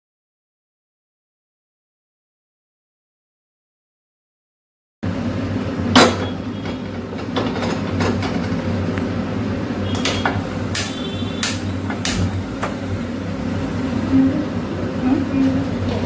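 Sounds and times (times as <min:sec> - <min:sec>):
gas lighter clicking: 0:10.0 - 0:12.7.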